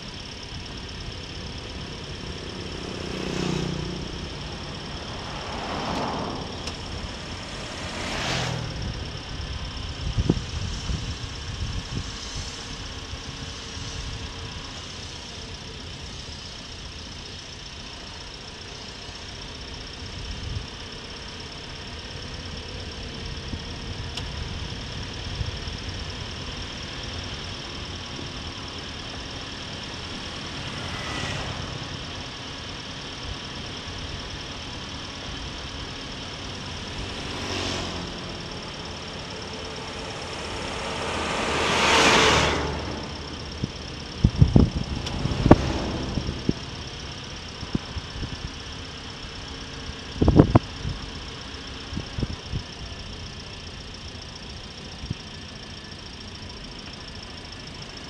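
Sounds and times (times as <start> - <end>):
road and wind noise: 0.0 - 58.0
vehicle engine running: 0.0 - 58.0
brief rushing swells: 3.2 - 10.9, 36.7 - 46.8.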